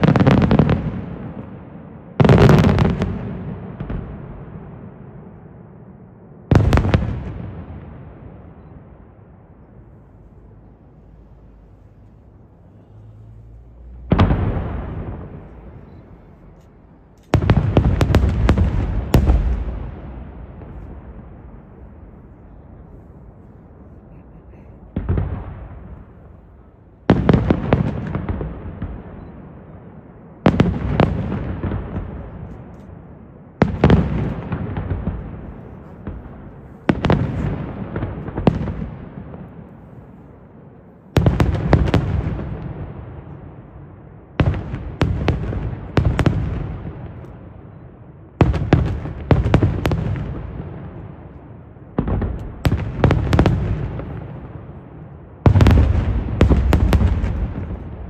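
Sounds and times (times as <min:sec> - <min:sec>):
firework bang echoing: 0:13.8 - 0:16.4, 0:17.3 - 0:22.2, 0:24.9 - 0:26.4, 0:51.9 - 0:58.0.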